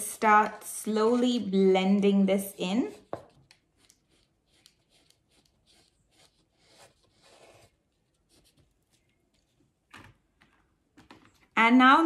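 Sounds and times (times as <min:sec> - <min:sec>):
pastel rubbing on paper: 0:03.8 - 0:09.0.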